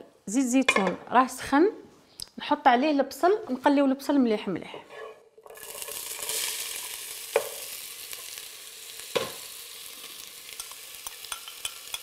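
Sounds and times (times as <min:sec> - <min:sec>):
onion sizzling in oil: 0:05.2 - 0:12.0.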